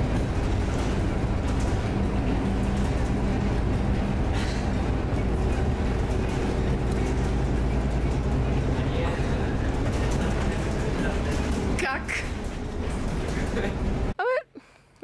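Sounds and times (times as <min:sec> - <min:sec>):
vehicle engine running: 0:00.0 - 0:14.1.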